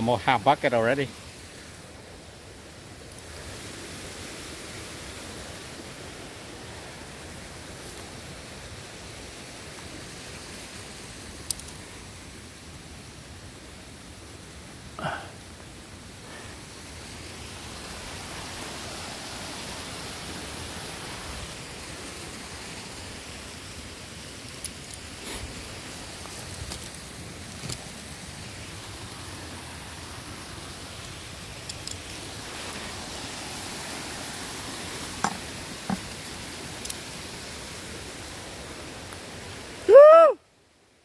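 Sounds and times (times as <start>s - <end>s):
camera knocks and rustle: 35.2s - 36.1s.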